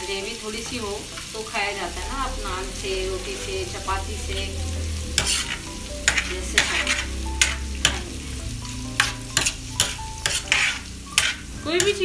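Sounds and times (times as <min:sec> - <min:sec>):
gravy sizzling: 0:00.0 - 0:12.0
metal spoon scraping griddle: 0:03.3 - 0:12.0.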